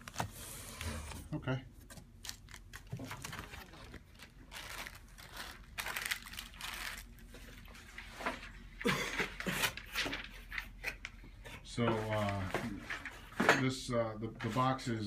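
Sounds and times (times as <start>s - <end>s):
plastic bags rustling: 2.1s - 8.7s.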